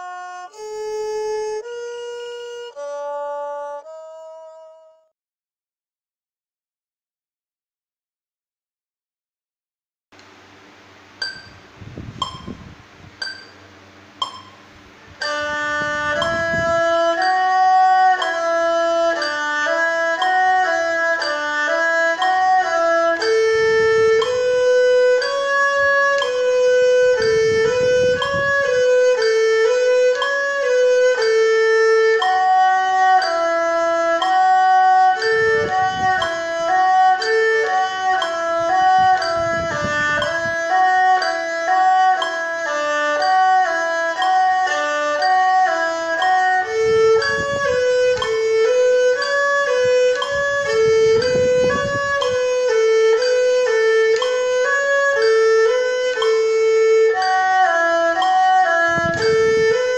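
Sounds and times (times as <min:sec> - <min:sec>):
bowed erhu playing scales: 0:00.0 - 0:05.1, 0:11.2 - 0:59.9
clicks: 0:14.2 - 0:14.6.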